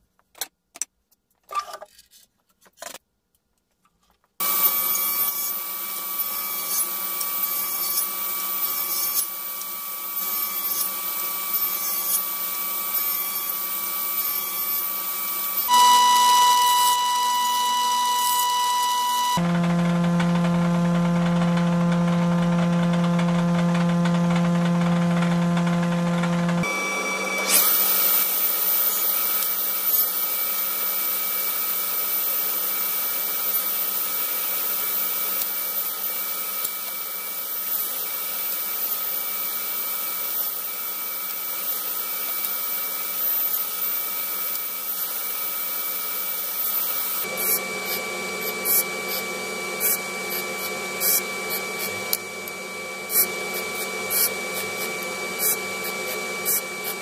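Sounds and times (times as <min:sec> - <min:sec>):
woodworking machine whine: 0:04.4 - 0:57.0
sanding disc scraping wood: 0:53.0 - 0:57.0.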